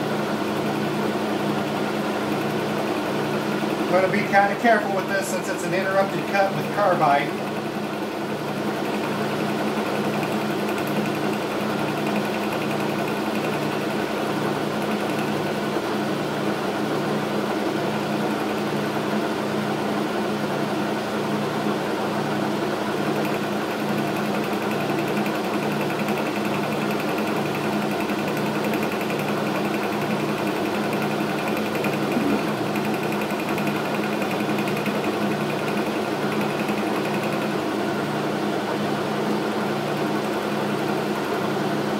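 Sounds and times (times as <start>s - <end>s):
metal lathe running: 0.3s - 16.2s, 23.0s - 37.9s.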